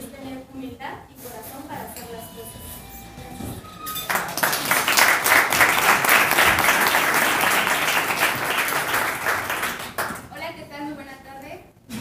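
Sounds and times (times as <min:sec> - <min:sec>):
people applauding: 0:04.0 - 0:10.3.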